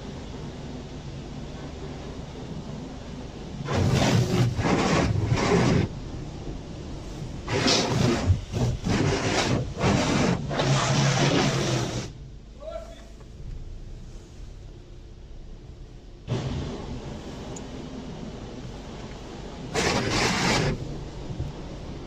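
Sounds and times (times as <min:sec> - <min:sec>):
low hum: 0:00.0 - 0:22.0
water jets spraying car: 0:00.0 - 0:22.0.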